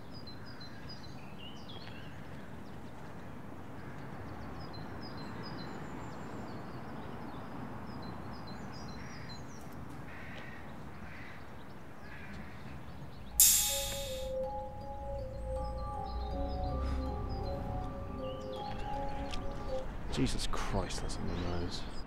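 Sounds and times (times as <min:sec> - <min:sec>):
background hiss: 0:13.4 - 0:17.2
small birds chirping: 0:20.2 - 0:22.0.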